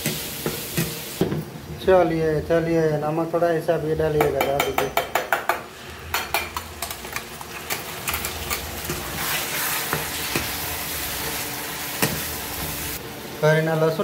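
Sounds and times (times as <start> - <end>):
onions frying in hot oil: 0.0 - 4.0, 5.7 - 14.0
spatula knocking on pan: 4.2 - 6.6
spatula scraping pan: 7.6 - 12.9.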